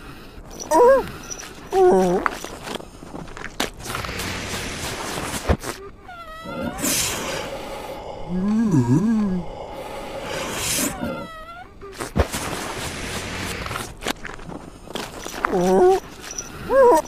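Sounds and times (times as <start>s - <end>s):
hissy sound bed: 6.5s - 11.3s.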